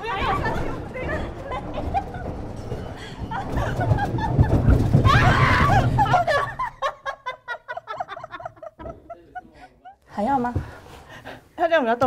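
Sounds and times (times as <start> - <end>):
deep shaking rumble: 0.0 - 8.8
people laughing: 0.0 - 10.0
people crying out: 5.0 - 6.7.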